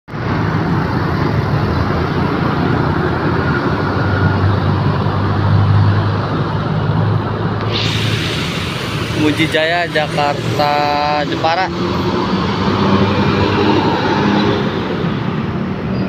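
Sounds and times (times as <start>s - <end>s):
road traffic passing: 0.1s - 16.0s.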